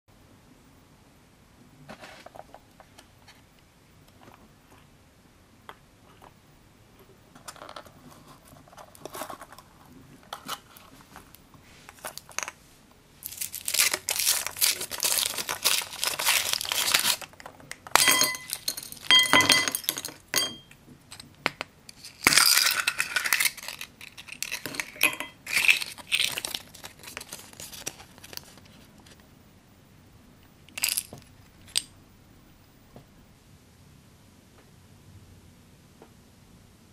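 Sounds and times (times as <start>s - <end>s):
foil wrapper crinkling and tearing: 13.2s - 17.5s, 22.0s - 28.8s.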